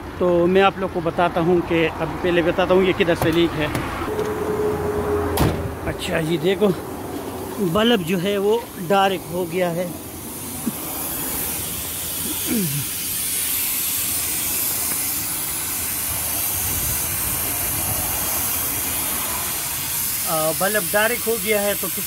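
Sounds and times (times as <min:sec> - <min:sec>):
compressed air hissing: 0:07.1 - 0:22.0.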